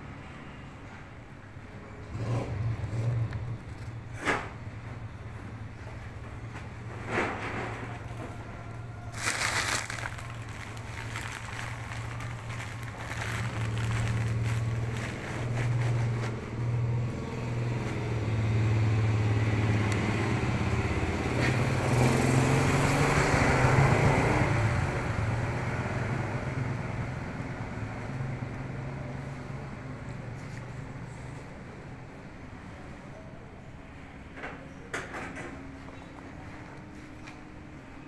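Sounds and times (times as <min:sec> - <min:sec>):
vehicle engine humming: 0:01.6 - 0:25.8.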